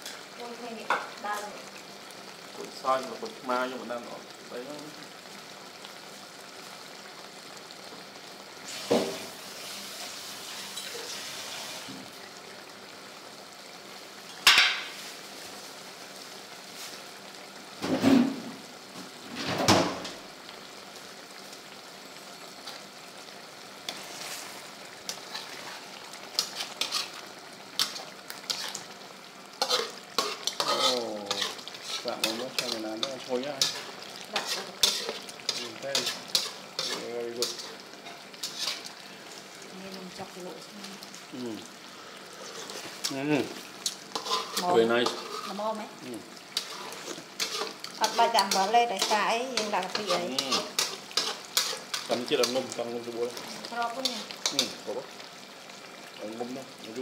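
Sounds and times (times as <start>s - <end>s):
curry simmering and sizzling: 0.0s - 57.0s
metal spatula scraping pan: 25.1s - 27.2s, 29.6s - 38.9s, 42.4s - 43.0s, 44.1s - 45.6s, 46.5s - 52.6s.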